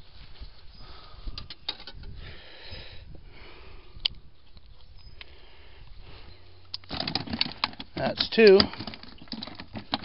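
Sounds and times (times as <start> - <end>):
handling clicks and rustles: 6.6 - 10.0.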